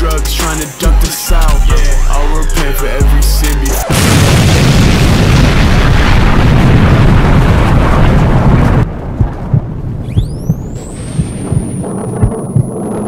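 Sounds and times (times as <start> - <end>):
loud explosion blast: 3.9 - 10.0
low rumble with thumps: 4.0 - 13.0
high whistling tone rising: 10.0 - 13.0.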